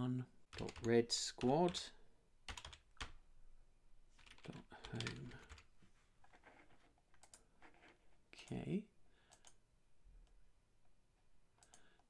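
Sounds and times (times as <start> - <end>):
keystrokes on computer keyboard: 0.5 - 1.8, 2.5 - 3.2, 4.2 - 5.7, 6.4 - 8.0, 9.3 - 9.6.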